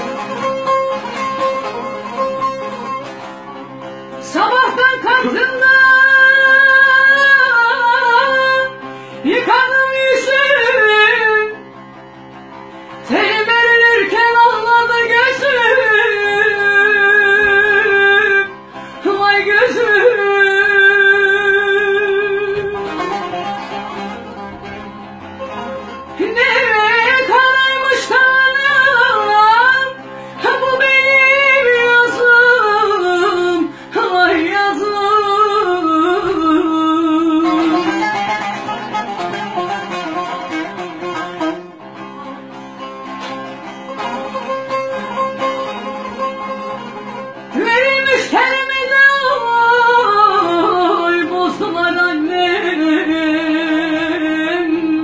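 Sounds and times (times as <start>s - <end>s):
long-necked lute playing: 0.0s - 55.0s
woman singing with vibrato: 4.2s - 11.6s, 13.0s - 23.5s, 26.1s - 39.3s, 47.5s - 55.0s.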